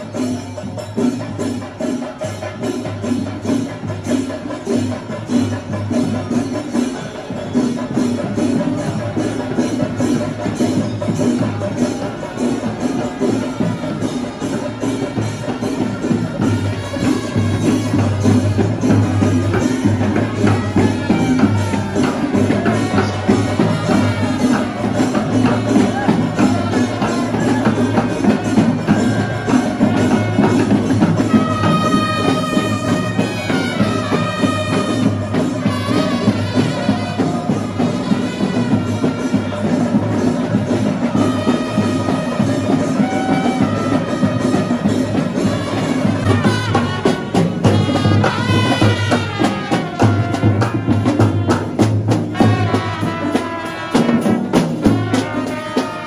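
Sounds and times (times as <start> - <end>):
drums beating: 0.0 - 56.0
trumpets playing melody: 29.1 - 40.0, 41.1 - 56.0.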